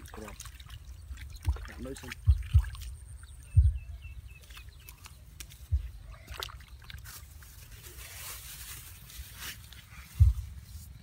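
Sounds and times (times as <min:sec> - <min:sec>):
faint outdoor background: 0:00.0 - 0:11.0
dull low thumps: 0:01.0 - 0:04.5, 0:05.6 - 0:06.2, 0:10.1 - 0:11.0.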